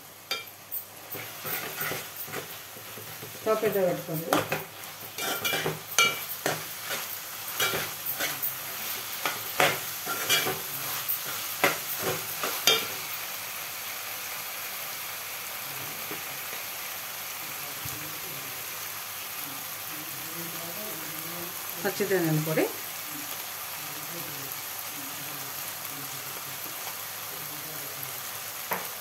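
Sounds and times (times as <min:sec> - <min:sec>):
vegetables frying sizzle: 0:00.0 - 0:29.0
spatula scraping a pot: 0:01.0 - 0:13.0.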